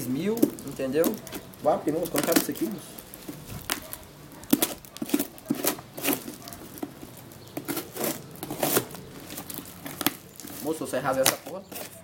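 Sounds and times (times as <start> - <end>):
knife cutting packing tape: 3.5 - 7.0, 7.6 - 12.0.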